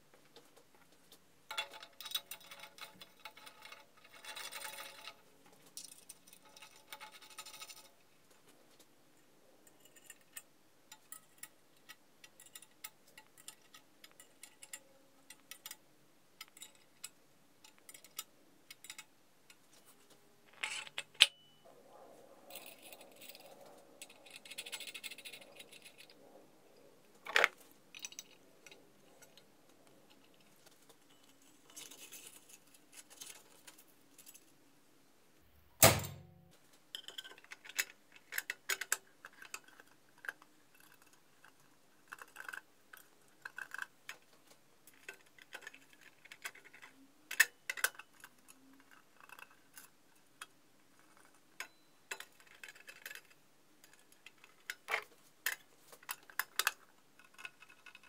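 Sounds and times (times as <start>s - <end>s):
parts clicking and knocking: 9.6s - 21.6s, 35.8s - 58.0s
loud thump: 35.8s - 36.4s.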